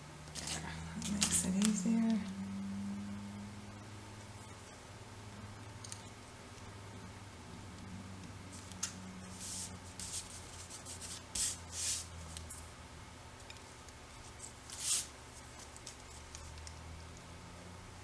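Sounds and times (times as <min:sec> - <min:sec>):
paper rustling and scraping: 0:00.4 - 0:01.8, 0:09.3 - 0:12.4, 0:14.2 - 0:16.4.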